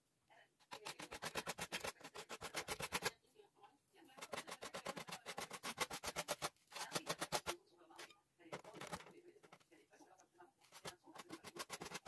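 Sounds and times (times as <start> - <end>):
paintbrush scrubbing on styrofoam: 0.7 - 3.2, 4.1 - 7.6, 10.6 - 12.0.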